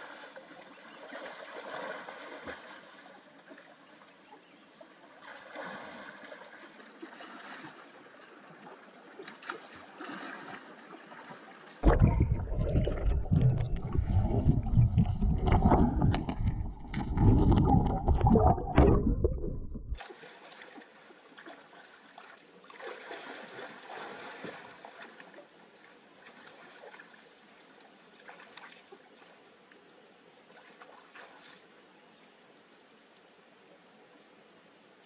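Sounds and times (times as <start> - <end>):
water splashing and trickling: 0.0 - 29.5, 30.4 - 31.8
muffled underwater gurgling: 11.8 - 20.0.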